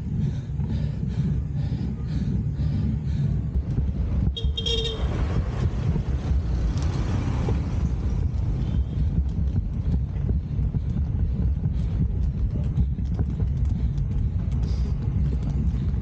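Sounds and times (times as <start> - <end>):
wind rumble on microphone: 0.0 - 16.0
vehicle horn toot: 4.3 - 5.2.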